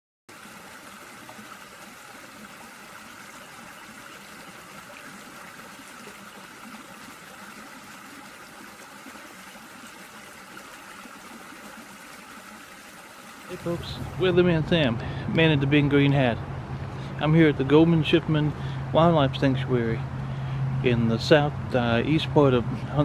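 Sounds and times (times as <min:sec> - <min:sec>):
flooded river rushing: 0:13.2 - 0:14.9.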